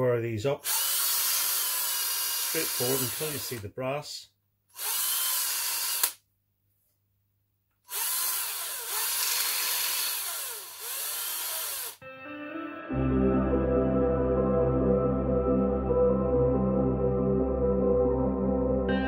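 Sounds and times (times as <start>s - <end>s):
cordless drill milling: 0.6s - 3.6s, 4.7s - 6.2s, 7.9s - 12.0s
soft music: 12.0s - 19.0s.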